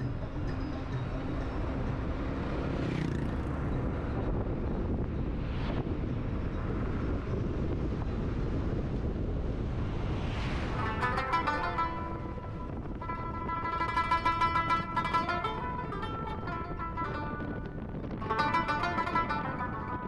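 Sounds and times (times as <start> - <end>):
car road and engine rumble: 0.0 - 20.0
wind noise: 0.0 - 20.0
plucked-string music: 10.7 - 20.0.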